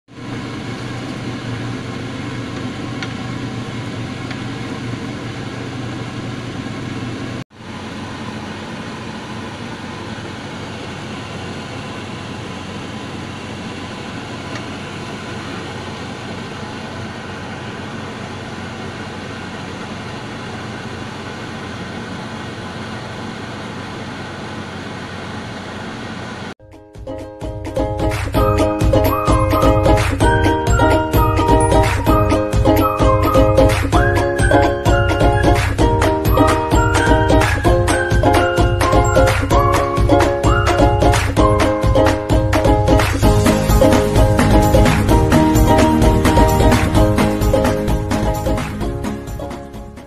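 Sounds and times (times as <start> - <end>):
mechanical hum with low drone: 0.1 - 26.6.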